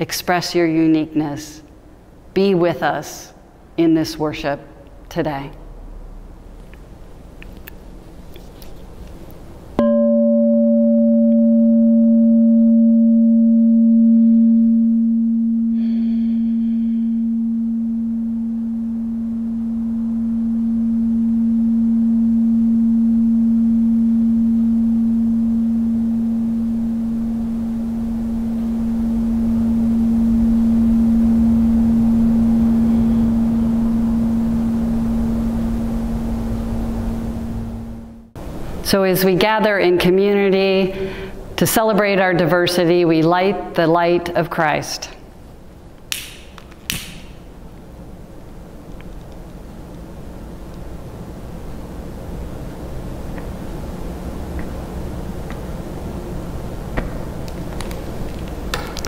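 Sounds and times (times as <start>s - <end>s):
singing bowl ringing: 9.8s - 38.3s.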